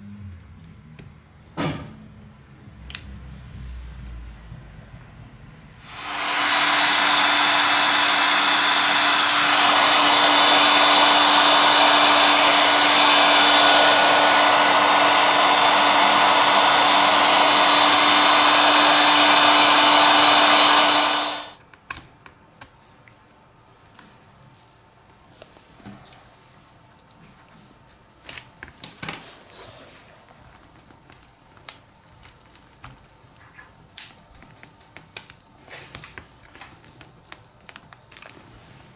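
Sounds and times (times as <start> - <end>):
heat gun blowing air: 5.8 - 21.6.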